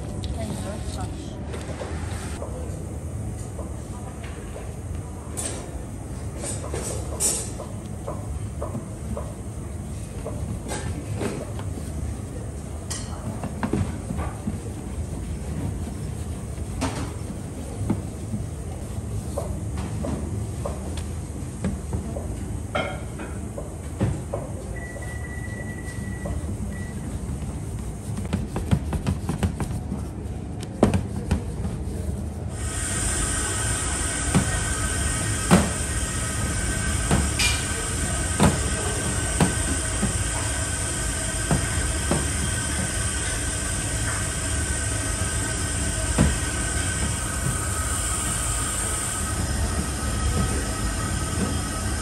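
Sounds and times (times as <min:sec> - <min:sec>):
kitchen machinery rumble and hiss: 0:00.0 - 0:52.0
steady hiss: 0:32.5 - 0:52.0.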